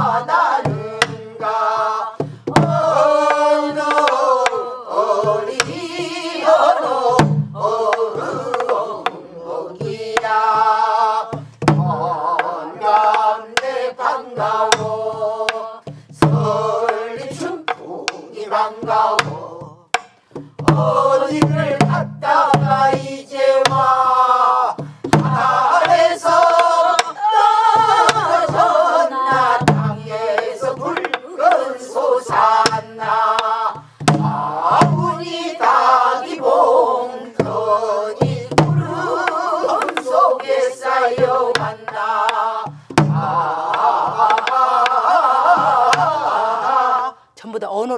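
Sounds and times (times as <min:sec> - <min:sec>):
group singing folk song: 0:00.0 - 0:47.4
barrel drum thumps and clicks: 0:02.2 - 0:04.6, 0:07.2 - 0:09.2, 0:11.3 - 0:12.5, 0:18.8 - 0:23.0, 0:24.8 - 0:27.2, 0:29.3 - 0:31.6, 0:32.3 - 0:35.2, 0:38.2 - 0:40.5, 0:41.2 - 0:45.0.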